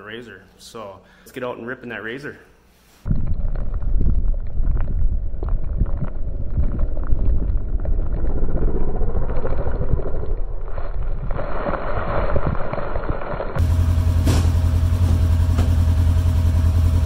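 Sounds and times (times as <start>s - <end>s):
wind buffeting on microphone: 3.1s - 13.2s
vehicle engine: 13.6s - 17.0s.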